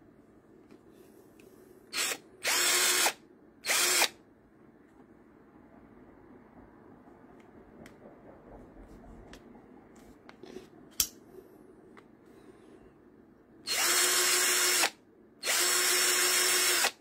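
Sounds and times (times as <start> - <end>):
cordless drill motor running: 1.9 - 4.1, 13.7 - 17.0.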